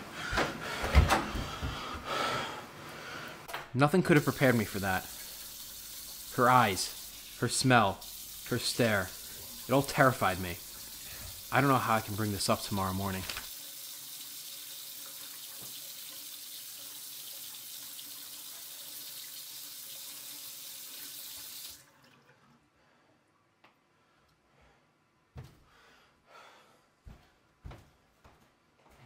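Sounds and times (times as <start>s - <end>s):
sink tap running: 4.0s - 21.8s.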